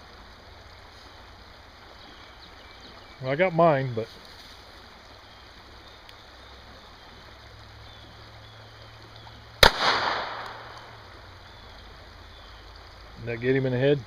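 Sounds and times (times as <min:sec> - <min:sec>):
pistol shot: 0:09.6 - 0:10.9.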